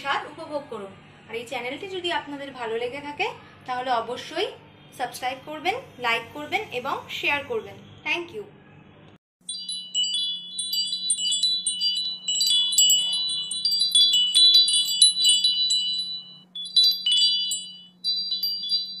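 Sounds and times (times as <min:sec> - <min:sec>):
wind chimes tinkling: 0:09.4 - 0:19.0
steady low hum: 0:09.5 - 0:19.0.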